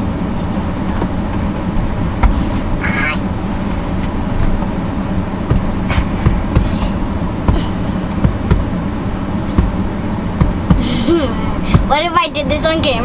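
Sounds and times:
low car cabin rumble: 0.0 - 13.0
knocks and rustles: 0.4 - 2.8, 5.4 - 8.7, 9.5 - 9.8.

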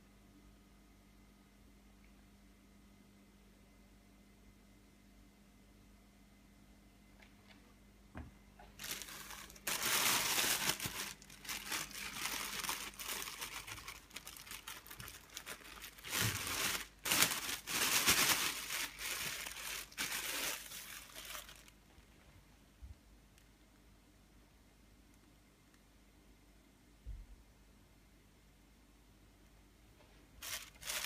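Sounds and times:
plastic bag crinkling: 8.6 - 21.8, 30.4 - 31.0.

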